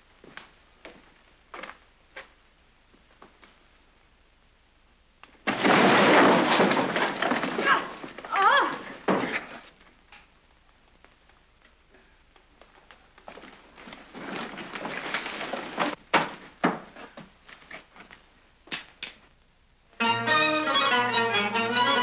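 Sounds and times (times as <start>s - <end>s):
knocks and thuds: 5.4s - 8.3s
shuffling: 6.7s - 18.6s
string band playing: 20.0s - 22.0s.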